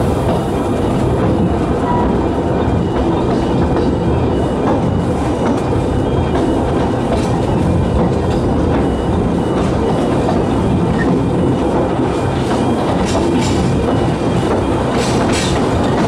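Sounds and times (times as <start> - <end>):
clickety-clack over rail joints: 0.0 - 16.0
train wheels rumbling on rails: 0.0 - 16.0.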